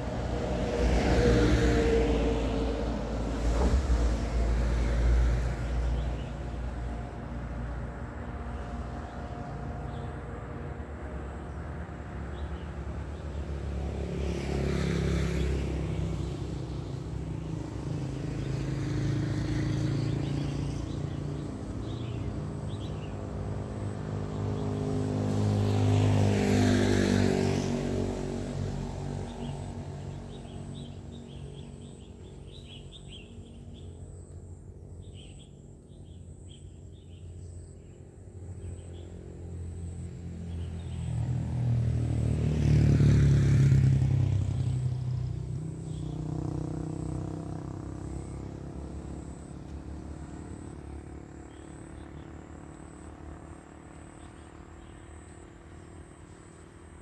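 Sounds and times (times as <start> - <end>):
motor vehicles passing: 0.0 - 57.0
birds chirping: 19.7 - 23.3, 29.3 - 39.2.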